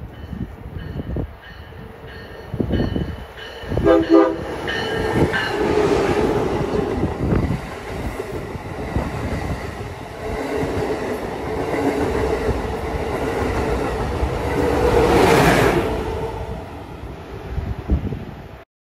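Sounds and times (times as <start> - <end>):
high-speed train rushing past: 0.0 - 18.6
steady train hum: 0.0 - 18.6.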